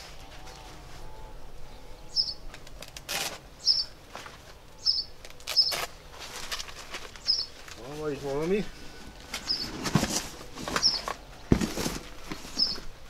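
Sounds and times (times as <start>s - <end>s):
small bird chirping: 2.0s - 2.4s, 3.6s - 4.0s, 4.8s - 5.9s, 7.2s - 7.6s, 9.4s - 9.7s, 10.8s - 11.1s, 12.5s - 12.8s.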